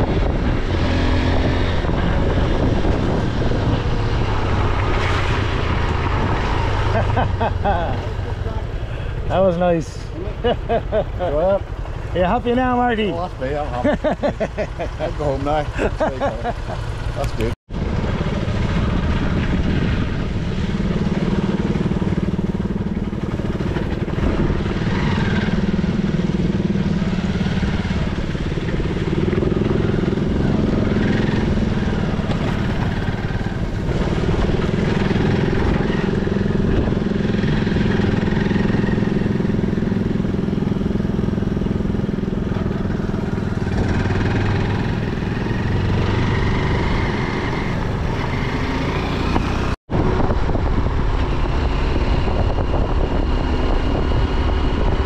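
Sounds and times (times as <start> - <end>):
motorcycle engine running: 0.0 - 55.0
wind and road noise: 0.0 - 55.0.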